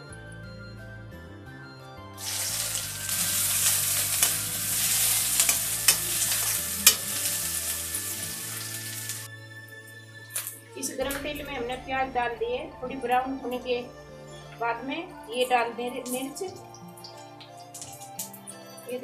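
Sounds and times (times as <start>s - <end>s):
metal spoon scraping pan: 2.2s - 7.6s
onions sizzling in hot oil: 2.2s - 9.3s.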